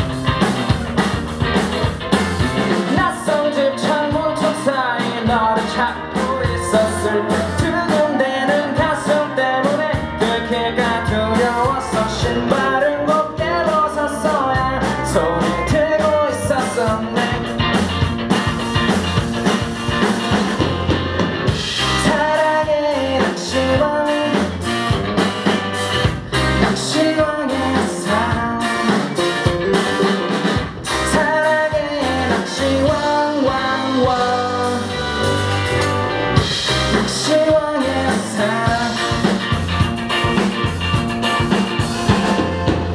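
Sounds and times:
drum kit: 0:00.0 - 0:42.9
electric bass: 0:00.0 - 0:42.9
electric guitars: 0:00.0 - 0:42.9
person singing: 0:02.7 - 0:17.7, 0:21.7 - 0:24.8, 0:26.3 - 0:35.4, 0:36.6 - 0:39.6.

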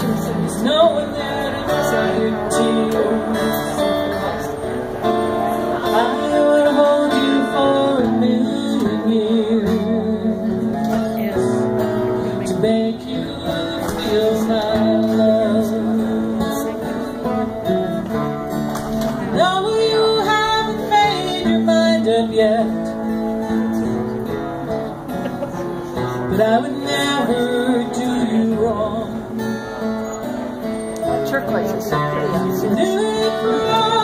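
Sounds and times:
acoustic guitars strumming: 0:00.0 - 0:34.0
woman singing: 0:19.3 - 0:23.0, 0:26.3 - 0:29.2, 0:32.6 - 0:34.0.

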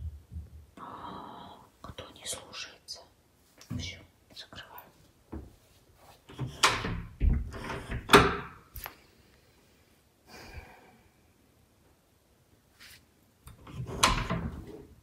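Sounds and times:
wooden door knocking and rattling: 0:06.4 - 0:08.5.

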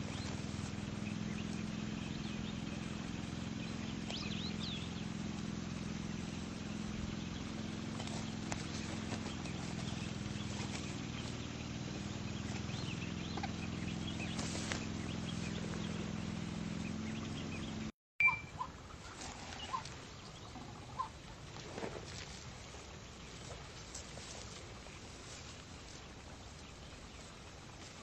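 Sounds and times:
low mechanical motor hum: 0:00.0 - 0:28.0
short high chirps: 0:18.2 - 0:18.7.

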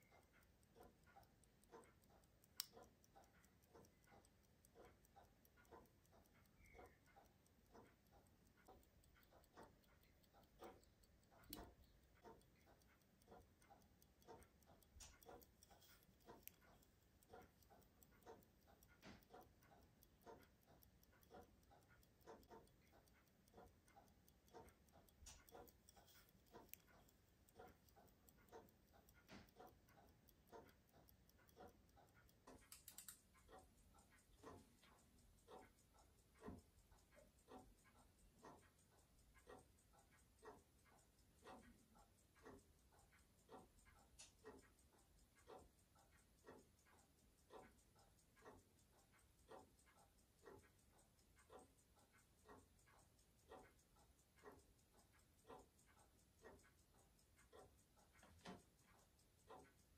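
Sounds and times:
pocket watch ticking: 0:00.0 - 0:59.9.

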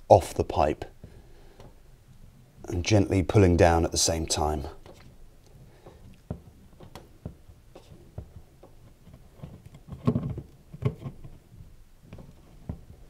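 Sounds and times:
small clicks and creaks: 0:04.8 - 0:13.0.

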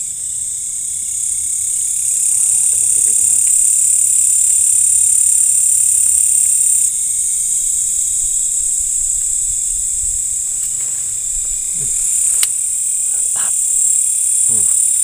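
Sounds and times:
crickets chirping: 0:00.0 - 0:15.0
sharp click: 0:12.2 - 0:12.6.

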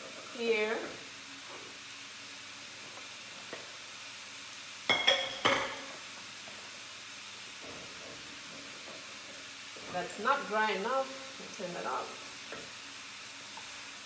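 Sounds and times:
food sizzling in a pan: 0:00.0 - 0:14.0
cookware clinking: 0:04.9 - 0:05.9.

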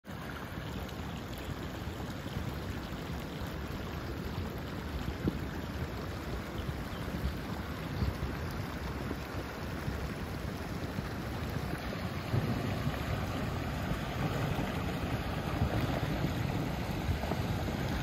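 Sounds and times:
river rushing over gravel: 0:01.7 - 0:18.0
wind buffeting microphone: 0:04.2 - 0:18.0.

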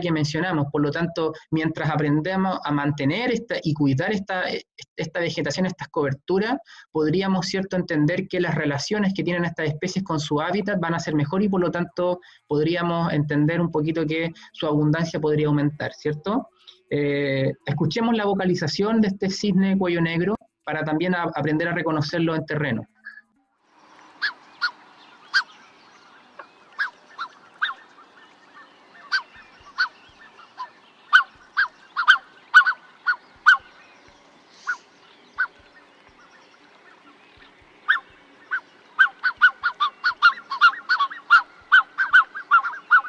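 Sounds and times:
swan honking calls: 0:22.8 - 0:43.0.

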